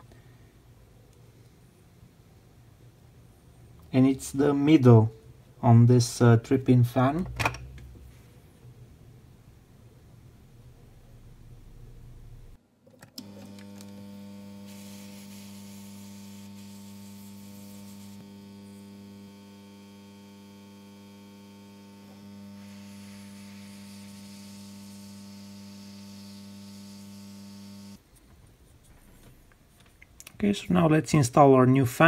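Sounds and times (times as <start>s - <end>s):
hot air gun humming and hissing: 13.2s - 28.0s.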